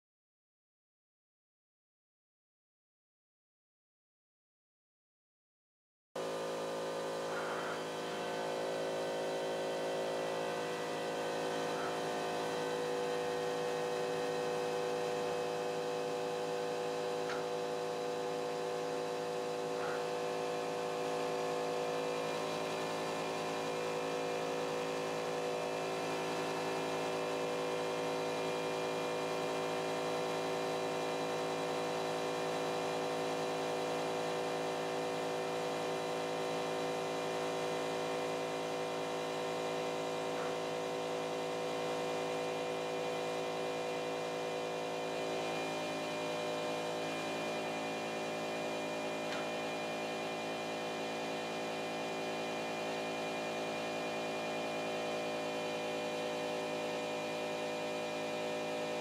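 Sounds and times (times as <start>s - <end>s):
plotting machine humming: 6.2s - 59.0s.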